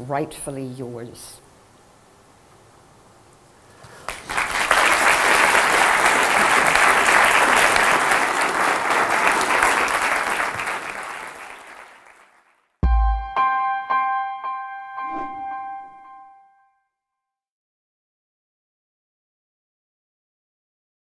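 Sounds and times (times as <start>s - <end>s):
audience applauding: 4.0s - 12.6s.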